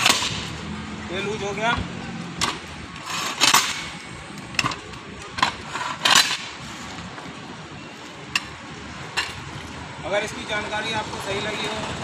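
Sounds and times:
metal scraping clatter: 2.4 - 4.0.

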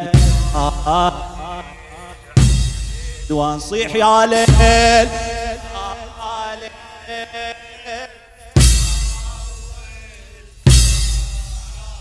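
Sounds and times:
person chanting a lament: 0.0 - 12.0
deep drum thumps: 4.4 - 6.3.

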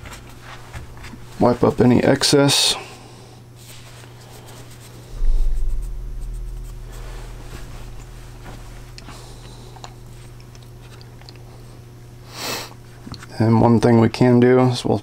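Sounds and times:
low rumble: 5.1 - 12.2
low hum: 5.1 - 12.3.

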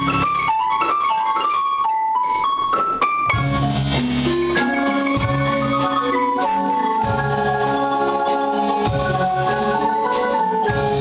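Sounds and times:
drum kit: 0.0 - 11.0
marimba ensemble playing: 0.0 - 11.0
upright bass: 3.4 - 6.3.

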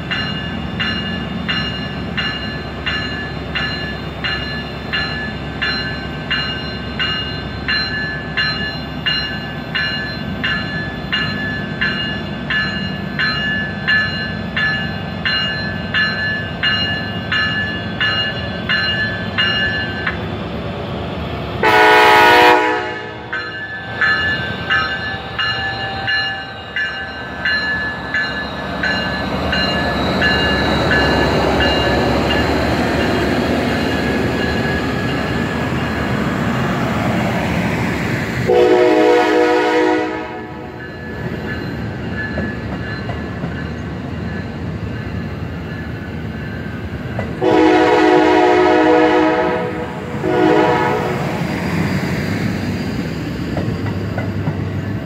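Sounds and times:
train coaches rumbling and clacking: 0.0 - 55.0
bell ringing: 0.1 - 20.1, 23.3 - 36.0
locomotive horn blasts: 21.6 - 23.4, 38.5 - 40.7, 47.4 - 51.2.

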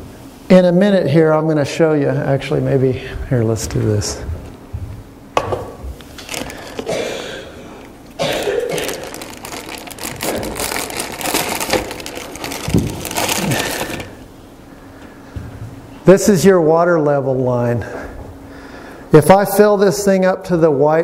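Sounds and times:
plastic bucket rustling and knocking: 8.8 - 14.1.

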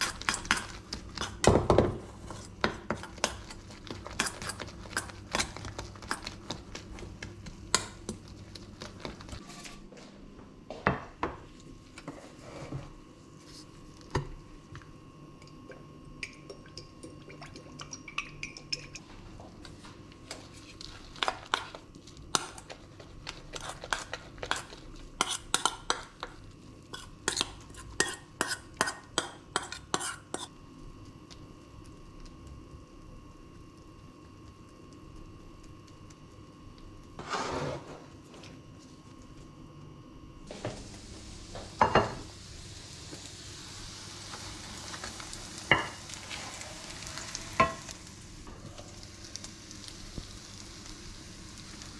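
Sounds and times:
spoon tapping in a frying pan: 17.8 - 19.0.

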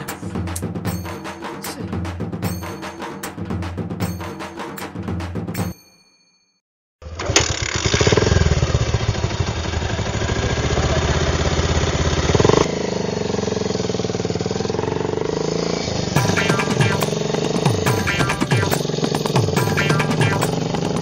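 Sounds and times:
scooter engine revving: 7.0 - 21.0.

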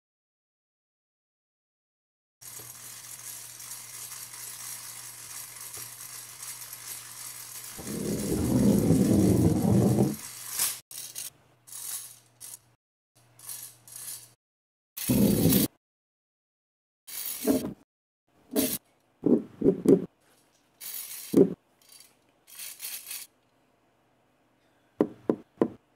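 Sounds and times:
rotary eggbeater rattling: 2.4 - 12.6, 20.8 - 23.3.

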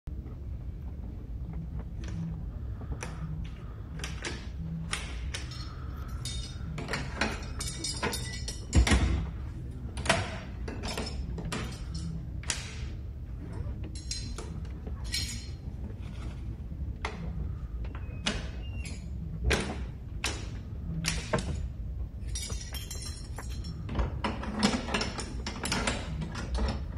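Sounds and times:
keys clicking in metal locks: 10.0 - 12.9, 13.8 - 15.6, 22.2 - 26.9.

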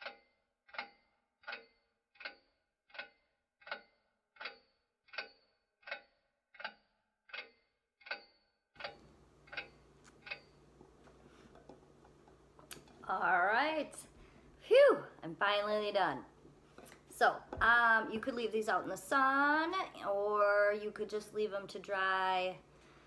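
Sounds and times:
clock ticking: 0.0 - 10.9.

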